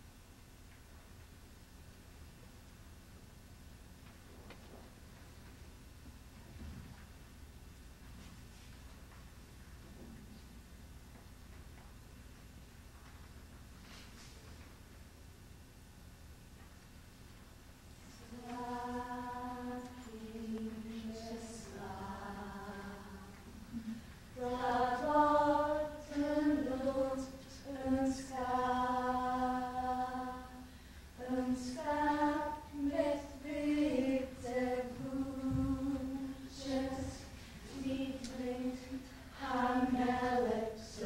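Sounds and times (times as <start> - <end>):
unaccompanied vocal music: 18.1 - 41.0.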